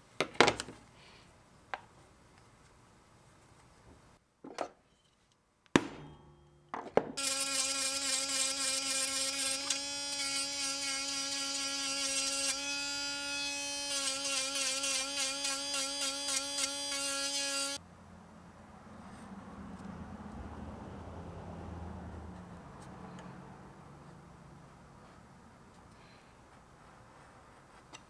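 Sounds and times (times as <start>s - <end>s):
rotary tool sanding leather: 7.2s - 17.8s.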